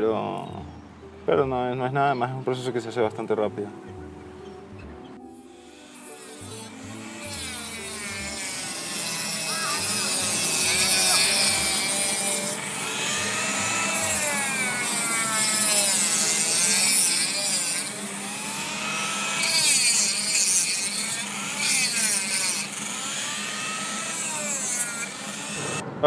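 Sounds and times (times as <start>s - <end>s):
rotary tool whining: 4.4s - 26.0s
gritty hiss of cutting plaster: 6.0s - 22.8s.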